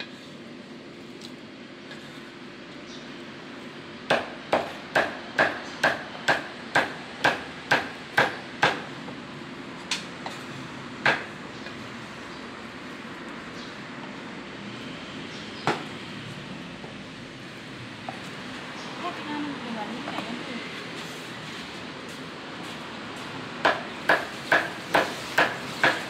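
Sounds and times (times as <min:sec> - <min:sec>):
cleaver chopping on cutting board: 0:04.1 - 0:08.9, 0:23.6 - 0:26.0.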